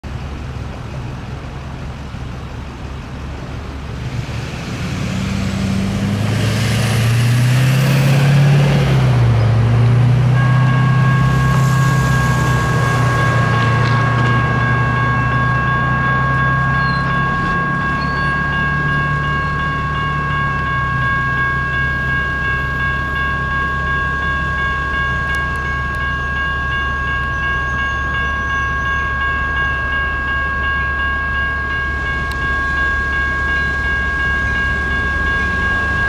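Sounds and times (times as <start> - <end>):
low engine drone: 0.0 - 36.0
vehicle passing: 4.0 - 22.1, 34.2 - 36.0
crossing signal bell ringing: 4.9 - 36.0.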